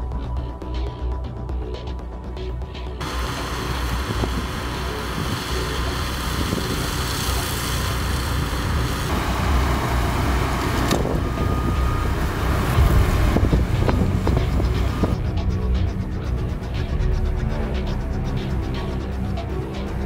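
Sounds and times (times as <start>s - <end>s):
flail mower cutting grass: 3.0s - 15.1s
tractor diesel engine rumble: 3.0s - 20.0s.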